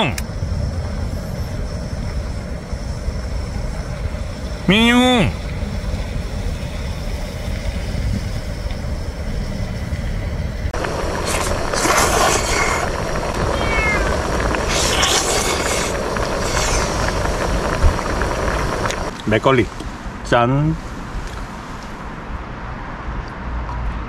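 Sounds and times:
low hum: 0.0 - 22.2
cat meowing: 13.3 - 14.3.

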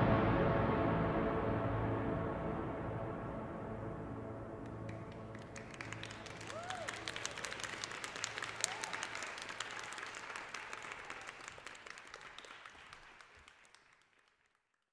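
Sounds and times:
audience applauding: 4.6 - 14.9.

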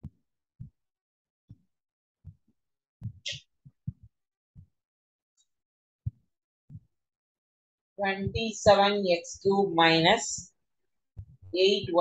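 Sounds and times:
soft low thumps on whiteboard: 3.0 - 4.7, 8.2 - 9.5, 11.2 - 12.0.

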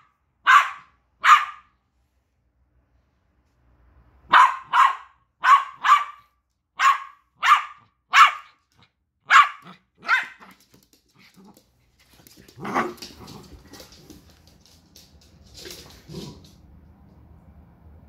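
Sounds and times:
dog barking: 0.0 - 1.8, 4.3 - 8.6, 9.2 - 10.6.

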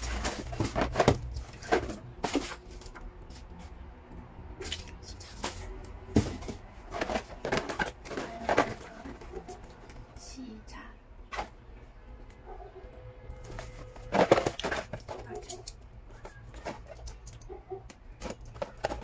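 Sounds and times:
cardboard and paper packaging handled: 0.0 - 3.9, 4.5 - 10.1, 13.3 - 19.0.

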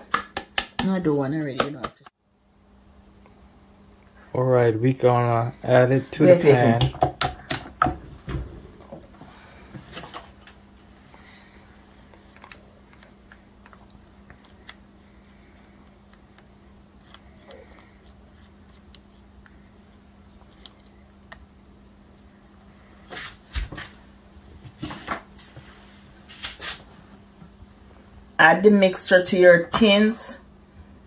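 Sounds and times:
steady low hum: 0.0 - 31.0.

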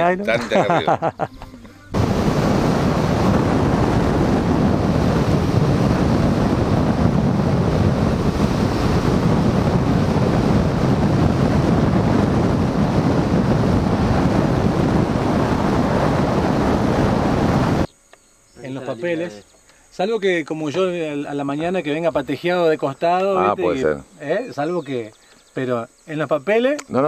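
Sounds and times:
wind on microphone: 1.9 - 17.9.

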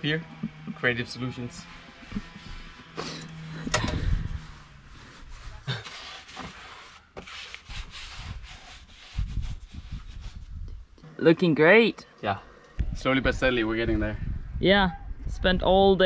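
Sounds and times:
paintbrush rubbing on wood: 1.1 - 10.6.

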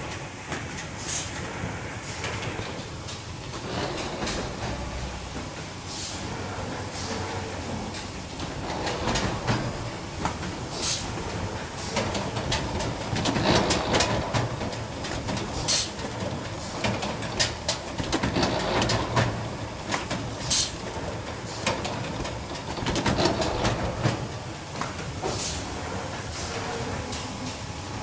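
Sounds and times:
conveyor machinery clattering: 0.0 - 28.0
sharp clicks and knocks: 7.6 - 25.4.

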